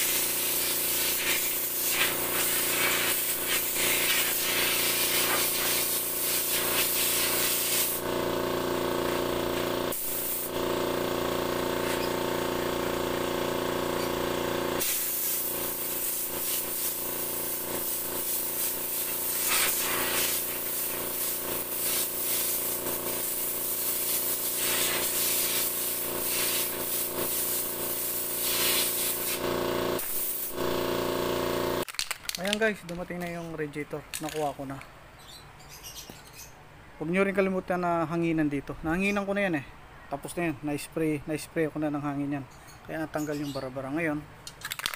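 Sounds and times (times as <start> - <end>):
compressed air blowgun hissing: 0.0 - 8.1, 9.9 - 10.6, 14.8 - 30.6.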